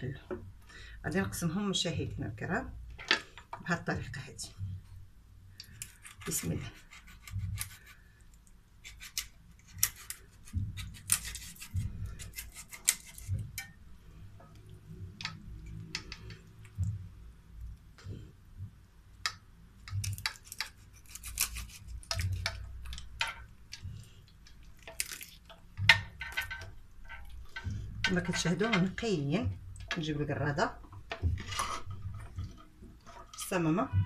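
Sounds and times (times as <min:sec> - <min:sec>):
clicks and crackles of cutting joints: 0:05.6 - 0:13.8, 0:19.2 - 0:28.2.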